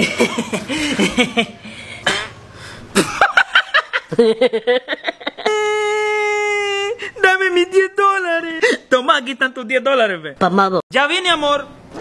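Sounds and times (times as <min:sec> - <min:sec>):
woman laughing: 0:00.0 - 0:01.7, 0:03.0 - 0:07.1.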